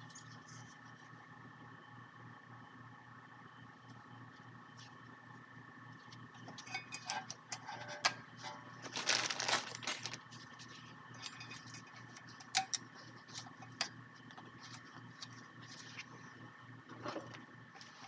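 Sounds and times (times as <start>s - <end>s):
faint hum: 0.0s - 18.0s
metal parts clinking: 6.6s - 10.2s.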